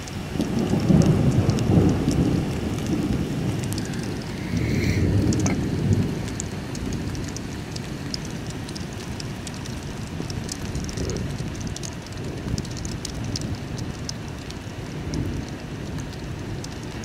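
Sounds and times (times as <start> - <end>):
raindrops ticking: 0.0 - 17.0
steady rain: 0.0 - 17.0
thunder rumbling: 0.0 - 17.0.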